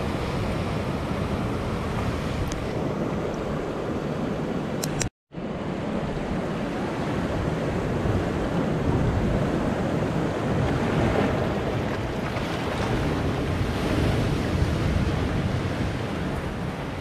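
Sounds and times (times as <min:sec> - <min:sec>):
surf rushing among boulders: 0:05.4 - 0:17.0
wave splashing against rock: 0:09.4 - 0:16.6.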